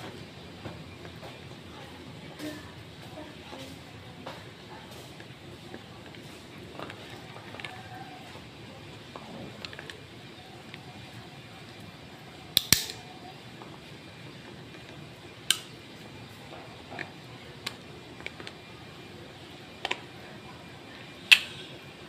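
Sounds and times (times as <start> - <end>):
metallic clicks of pistol parts: 12.6 - 13.0.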